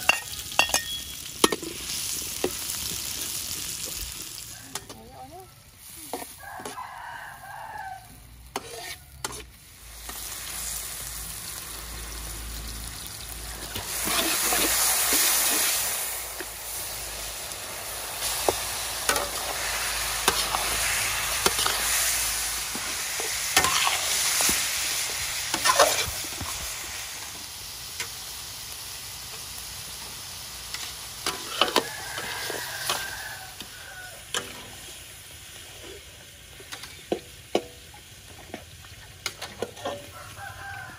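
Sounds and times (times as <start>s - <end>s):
chicken sizzling in hot oil: 0.0s - 40.9s
metal spatula scraping a wok: 8.4s - 11.1s, 13.0s - 26.7s, 30.0s - 37.7s, 38.3s - 40.4s.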